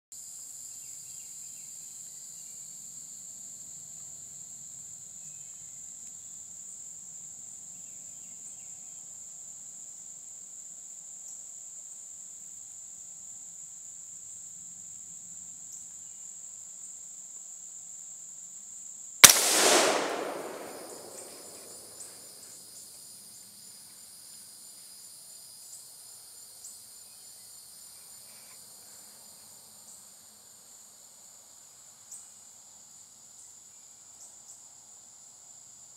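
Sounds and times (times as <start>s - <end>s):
rifle shot with echo: 19.2s - 22.3s
crickets chirping: 19.2s - 22.4s.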